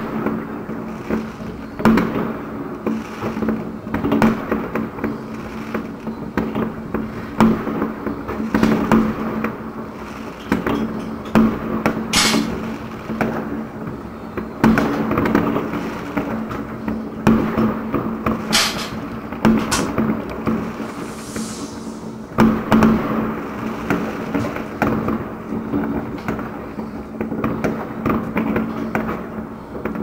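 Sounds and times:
hissing firework bursts: 0.0 - 27.6
fireworks bangs: 0.0 - 30.0
steady low tone: 20.2 - 22.7.

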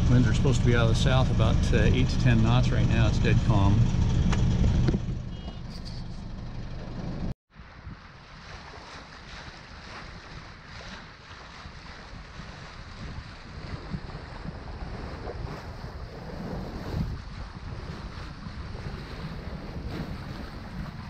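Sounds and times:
water washing along hull: 0.0 - 3.8, 7.6 - 21.0
boat engine rumble: 0.0 - 21.0
wind noise on microphone: 6.9 - 21.0.

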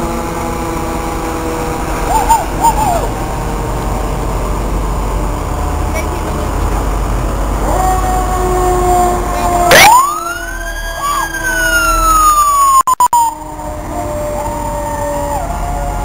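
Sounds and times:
engine rumble: 0.0 - 16.0
siren whooping and wailing: 1.1 - 3.4, 7.6 - 16.0.

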